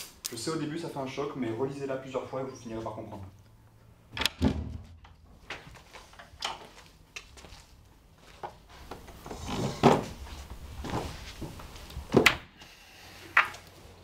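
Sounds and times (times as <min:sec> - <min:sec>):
loud thump: 0:04.3 - 0:05.0
footsteps: 0:05.3 - 0:11.9
chair scraping across floor: 0:08.7 - 0:11.9.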